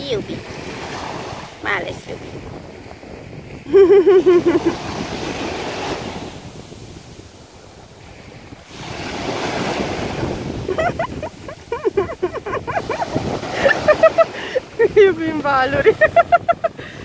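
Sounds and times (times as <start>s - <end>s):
person's voice: 0.0s - 0.4s, 1.6s - 2.3s, 14.8s - 16.0s
small waves breaking on shore: 0.0s - 17.0s.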